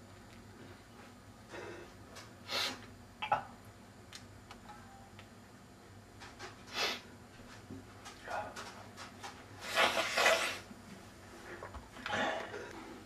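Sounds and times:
person sniffing: 2.4 - 2.8, 6.7 - 7.1.

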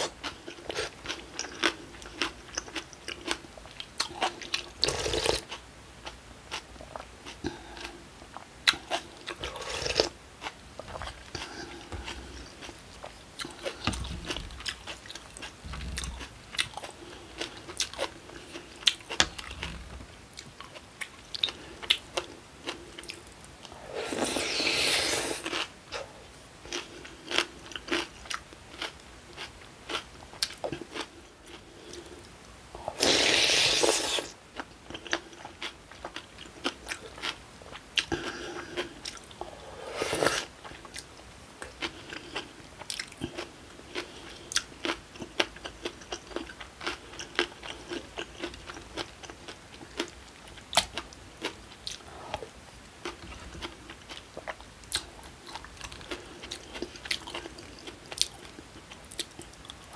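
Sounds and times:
crisp chewing and crunching: 0.0 - 26.1, 26.7 - 32.2, 33.0 - 52.4, 53.0 - 59.9
slurping broth: 23.7 - 25.6, 32.8 - 34.3, 39.4 - 40.5.

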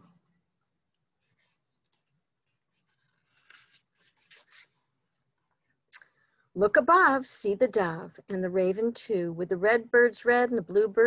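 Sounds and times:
book page turning: 1.2 - 5.3.

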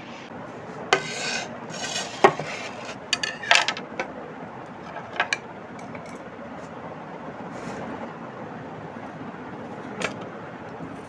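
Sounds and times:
vegetable peeler scraping: 1.0 - 3.0.

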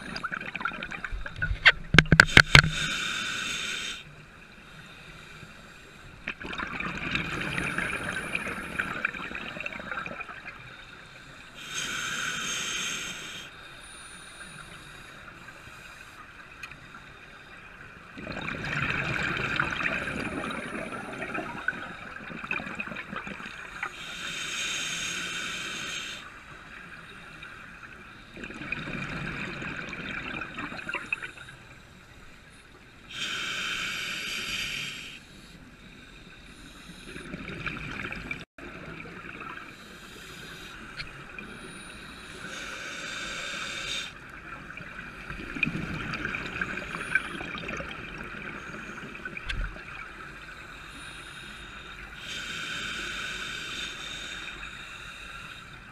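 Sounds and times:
exhaled bubbles gurgling: 0.0 - 2.7, 6.3 - 10.7, 18.1 - 23.9, 28.3 - 31.5, 37.0 - 40.0, 44.2 - 50.6
regulator inhalation hiss: 2.3 - 4.1, 11.1 - 16.2, 23.9 - 26.4, 33.0 - 37.2, 39.7 - 44.2, 50.3 - 55.9.

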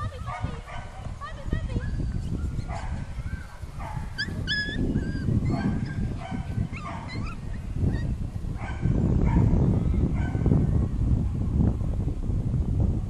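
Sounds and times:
puppies yipping and whimpering: 1.8 - 8.1.

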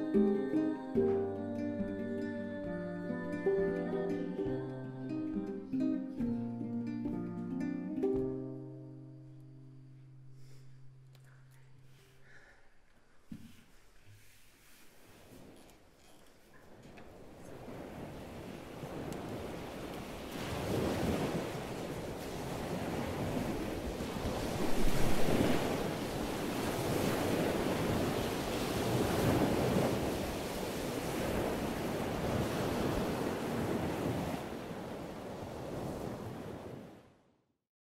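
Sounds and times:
ocean waves washing in: 0.0 - 8.9, 16.6 - 37.3.

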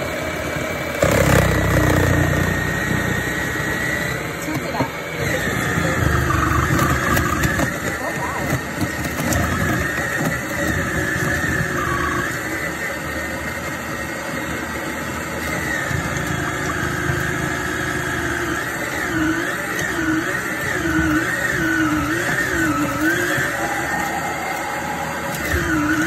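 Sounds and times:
motor whining: 0.0 - 26.0.

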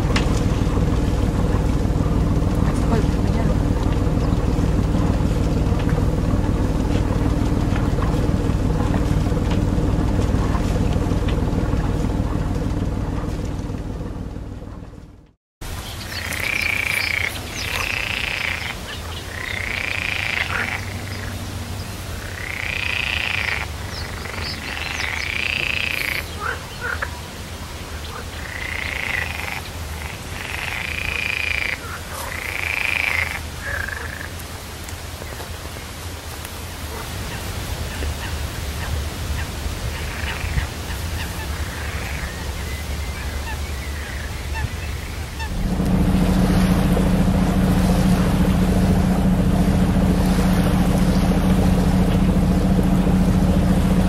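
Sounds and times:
boat engine running: 0.0 - 54.0
frogs croaking: 15.7 - 36.1, 36.9 - 54.0.

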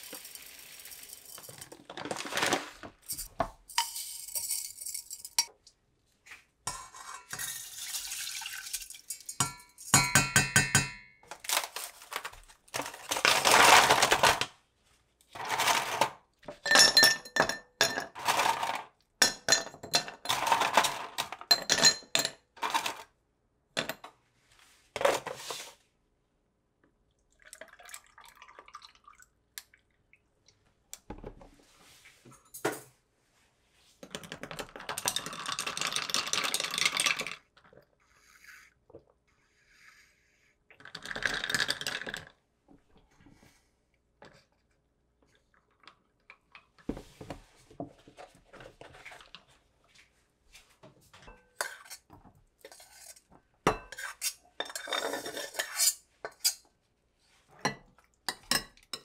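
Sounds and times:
rice pouring into glass jug: 0.0 - 2.7, 7.4 - 9.1
juice pouring into glass: 7.7 - 9.0, 27.3 - 29.3.

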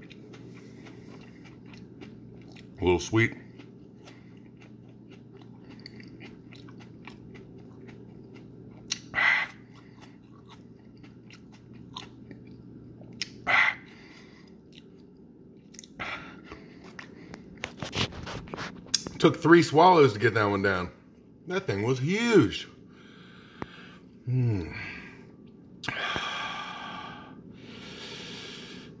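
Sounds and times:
person chewing wetly: 0.0 - 18.2.

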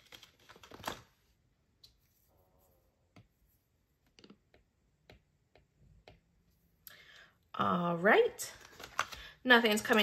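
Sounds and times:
paper bills rustling in plastic: 0.0 - 1.1, 8.5 - 10.0
stylus tapping on tablet screen: 4.0 - 6.4.

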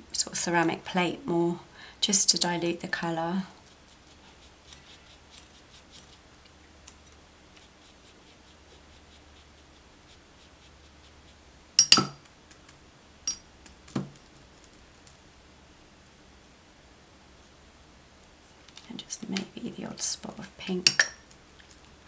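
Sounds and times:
paintbrush clinking on glass jar: 11.8 - 12.2, 20.9 - 21.2.

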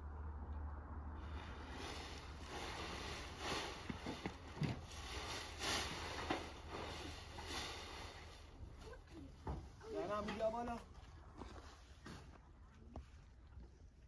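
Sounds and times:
low hum: 0.0 - 4.1.

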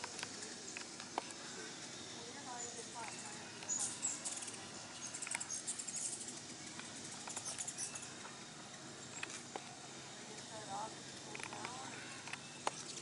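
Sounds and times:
faint outdoor background: 0.0 - 13.0
hummingbirds chipping and twittering: 0.0 - 13.0.

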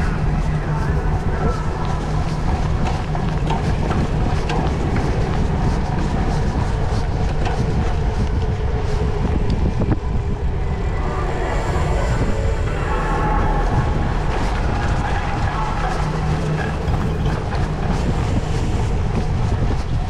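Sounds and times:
bike rattling over ground: 0.0 - 10.6
wind rumbling on microphone: 0.0 - 20.0.

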